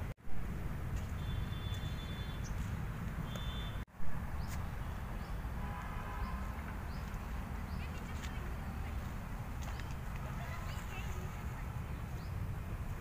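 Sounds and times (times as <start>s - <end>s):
faint bird chirps: 3.2s - 3.8s.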